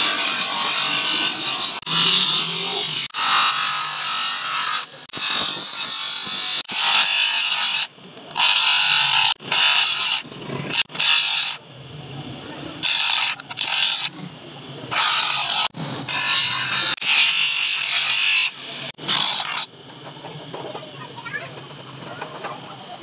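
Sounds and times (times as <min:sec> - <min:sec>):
sanding disc hissing: 0:14.9 - 0:19.7.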